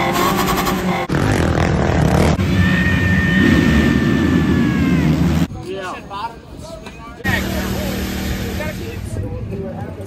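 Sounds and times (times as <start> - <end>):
motocross bikes running: 7.2 - 10.0.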